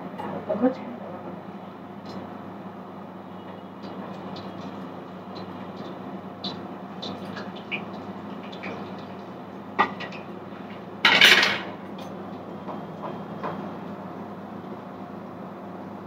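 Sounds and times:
steady frying hiss: 0.0 - 16.0
loud cookware clatter: 9.8 - 12.2.

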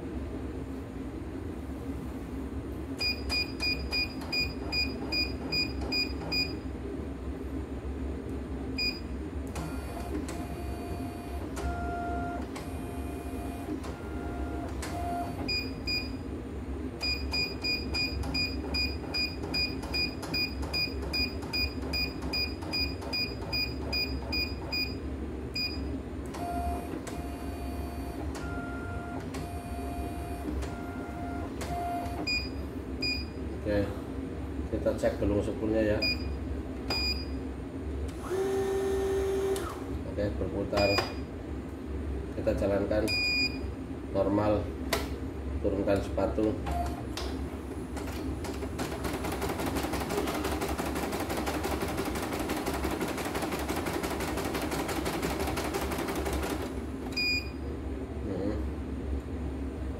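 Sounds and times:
embroidery machine motor whine: 9.4 - 16.3, 38.1 - 40.0.

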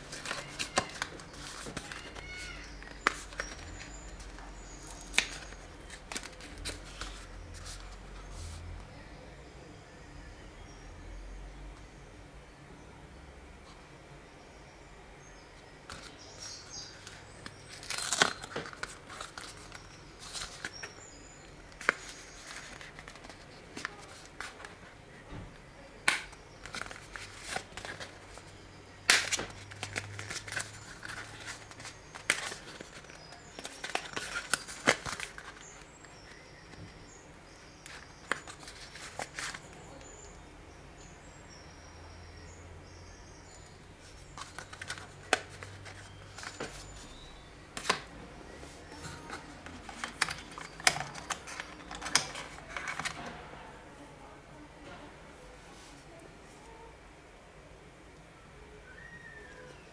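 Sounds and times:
smartphone being handled: 0.0 - 8.7, 15.9 - 24.9, 26.0 - 37.1, 37.8 - 40.3, 44.0 - 53.4.

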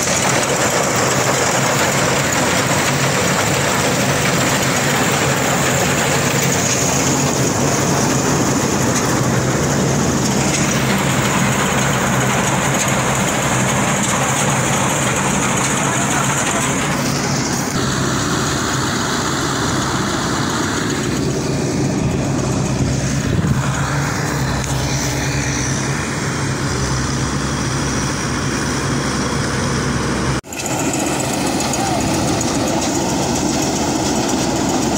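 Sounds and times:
combine harvester engine drone: 0.0 - 34.9.

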